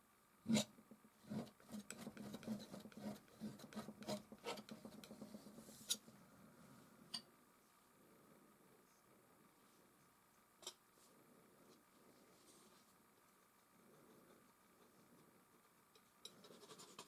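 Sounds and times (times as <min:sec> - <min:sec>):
palette knife scraping paint: 0:00.5 - 0:06.0.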